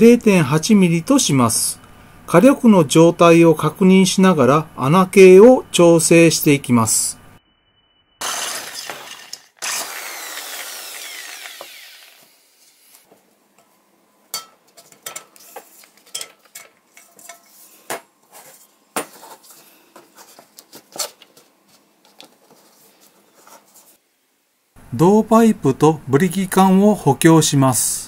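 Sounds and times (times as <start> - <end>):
power drill on tin can: 8.2 - 12.5.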